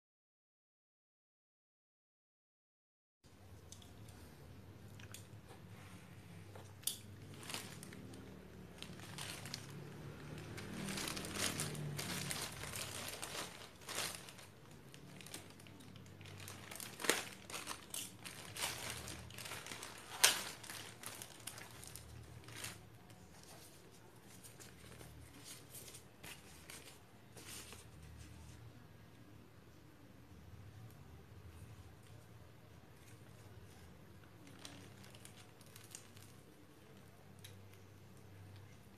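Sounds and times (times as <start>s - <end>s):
plastic bag crinkling: 6.9s - 28.5s, 33.1s - 37.8s.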